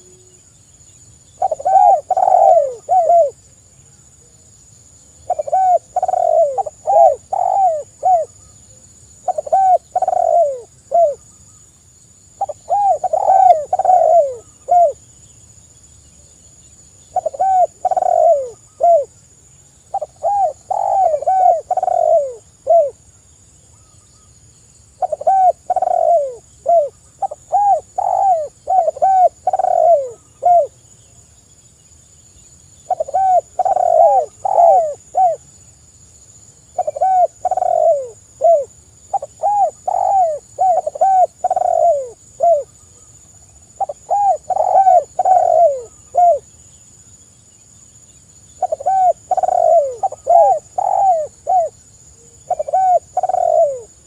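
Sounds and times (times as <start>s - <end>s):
dove cooing: 1.4s - 3.4s, 5.2s - 8.4s, 9.2s - 11.2s, 12.4s - 15.0s, 17.1s - 19.1s, 19.9s - 23.0s, 25.0s - 30.8s, 32.8s - 35.5s, 36.8s - 42.8s, 43.8s - 46.5s, 48.6s - 54.0s.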